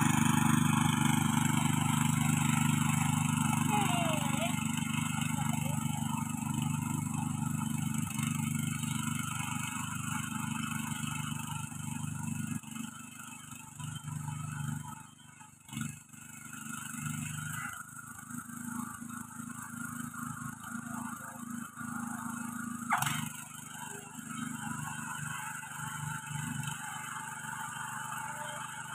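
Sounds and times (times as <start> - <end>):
rotary tines working soil: 0.0 - 9.9
cultivator engine running: 0.0 - 28.9.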